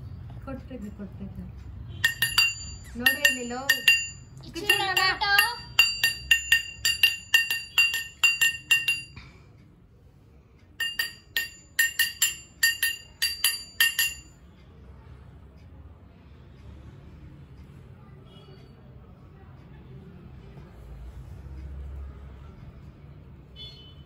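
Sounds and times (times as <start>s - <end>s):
ringing clinks on glass: 2.0s - 9.3s, 10.8s - 14.4s.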